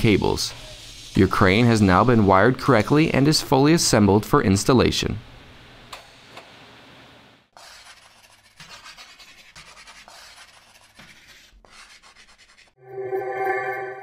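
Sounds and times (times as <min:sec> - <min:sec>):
chalk scratching on board: 0:07.5 - 0:12.8.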